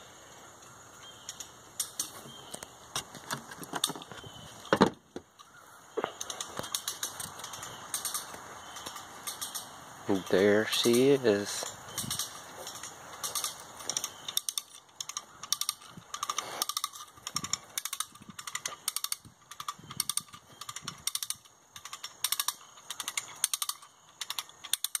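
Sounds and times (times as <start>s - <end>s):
footsteps crunching dry grass: 11.1s - 14.1s.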